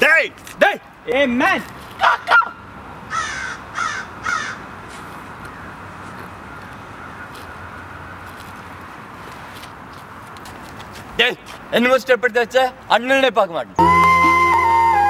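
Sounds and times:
outdoor background noise: 0:00.0 - 0:15.0
crow cawing: 0:03.1 - 0:04.6.

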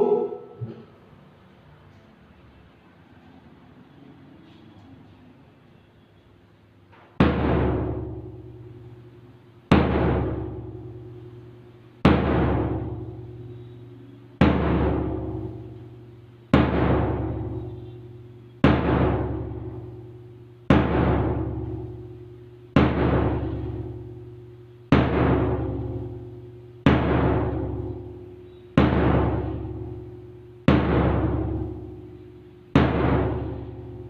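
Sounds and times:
steady low hum: 0:06.6 - 0:34.0
drum beats ringing out: 0:07.2 - 0:34.0.

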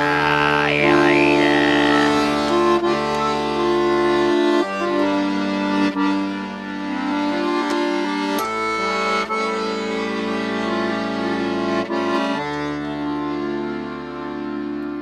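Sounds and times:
accordion chords: 0:00.0 - 0:15.0.

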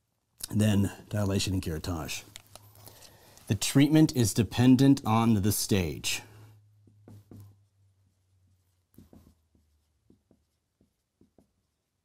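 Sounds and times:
marker scratching on whiteboard: 0:06.8 - 0:12.0.

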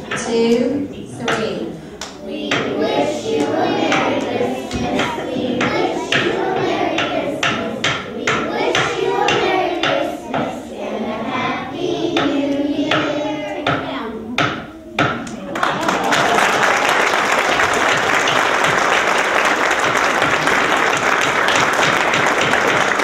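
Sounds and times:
children singing: 0:01.2 - 0:15.4
hand claps keeping a beat: 0:01.3 - 0:10.6, 0:12.1 - 0:13.8, 0:14.4 - 0:23.0.

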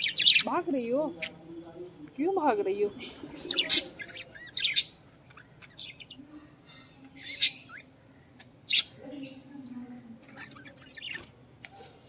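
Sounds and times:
budgerigars chirping and squawking: 0:00.0 - 0:01.4, 0:02.7 - 0:09.5, 0:10.2 - 0:11.4.

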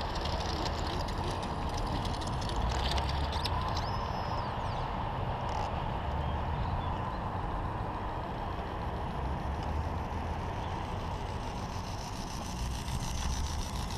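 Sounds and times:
wind noise on microphone: 0:00.0 - 0:13.9.

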